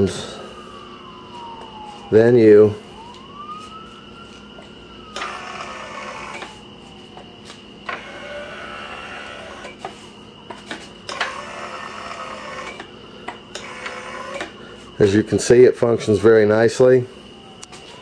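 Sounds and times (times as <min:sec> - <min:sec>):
electric motor and chain whining: 0:04.6 - 0:06.6, 0:07.4 - 0:12.9, 0:13.5 - 0:15.2.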